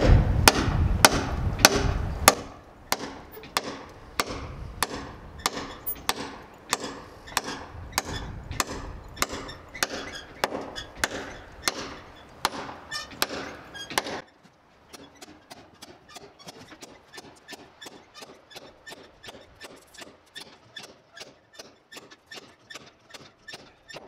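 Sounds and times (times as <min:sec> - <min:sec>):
hammer driving nails into wood: 0:00.0 - 0:14.2.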